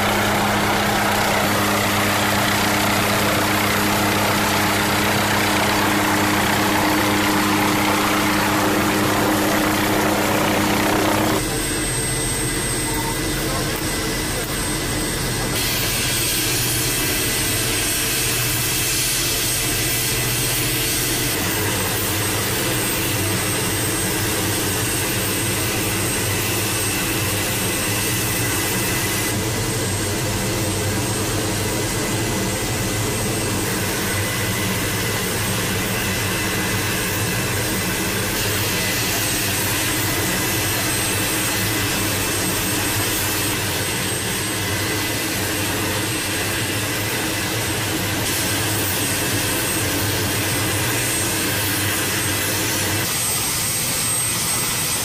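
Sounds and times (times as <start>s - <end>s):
rotor rushing noise: 0.0s - 11.6s
helicopter engine high whine: 0.0s - 55.0s.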